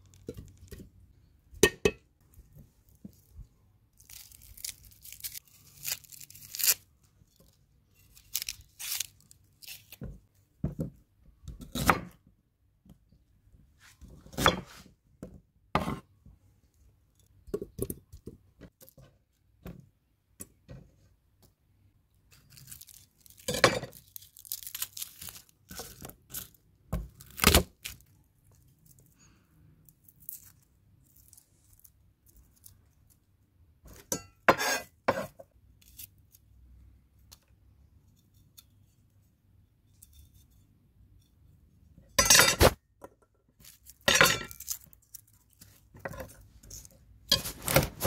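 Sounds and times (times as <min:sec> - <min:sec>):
onion skin peeling and rustling: 0:02.4 - 0:10.3, 0:22.2 - 0:33.3, 0:43.5 - 0:48.0.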